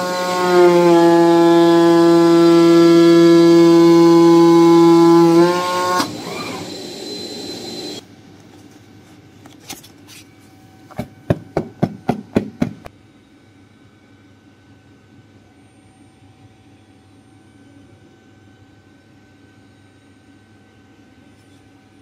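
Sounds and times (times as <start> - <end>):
cutting machine humming: 0.0 - 8.0.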